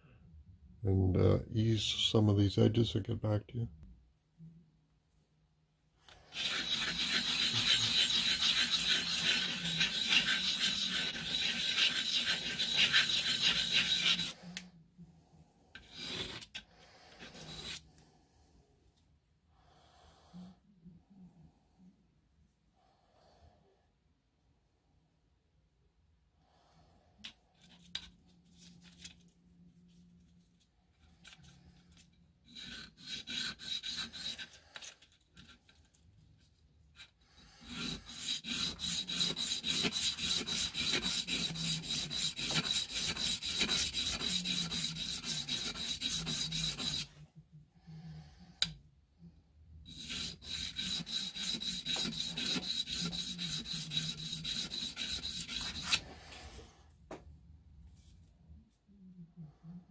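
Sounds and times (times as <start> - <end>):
metal part scraping on sandpaper: 6.3 - 14.4, 15.8 - 16.6, 17.2 - 17.8, 31.0 - 36.0, 37.0 - 47.1, 49.9 - 56.1.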